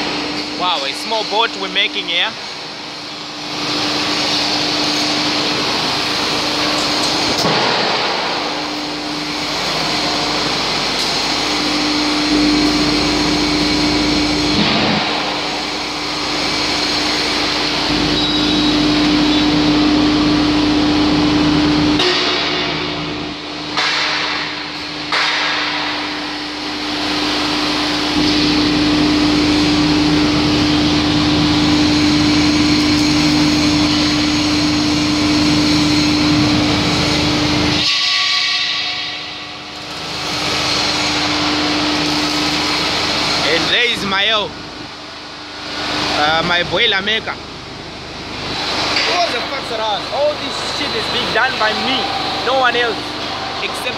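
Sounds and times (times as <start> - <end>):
propeller whirring in steel duct: 0.0 - 25.1.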